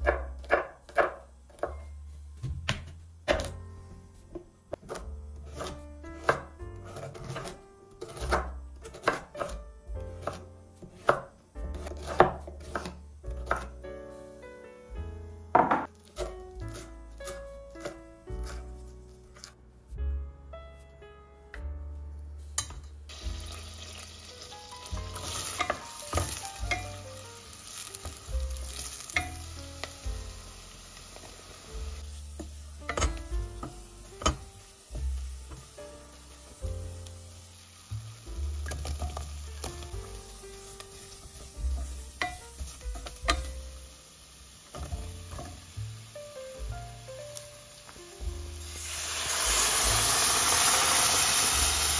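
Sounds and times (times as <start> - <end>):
knife chopping on cutting board: 0.0 - 1.8, 2.4 - 3.6, 4.4 - 13.8, 15.6 - 18.6
soft background music: 0.0 - 51.9
food sizzling in a frying pan: 22.6 - 51.9.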